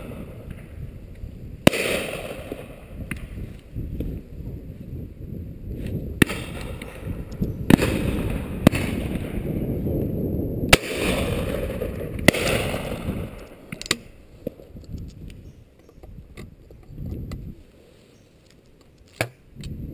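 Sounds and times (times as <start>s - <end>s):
shotgun shots: 1.6s - 3.2s, 6.2s - 9.4s, 10.7s - 13.7s.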